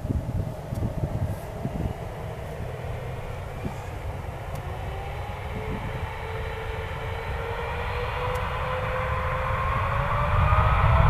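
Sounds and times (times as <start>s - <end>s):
jet engines spooling up: 0.0s - 11.0s.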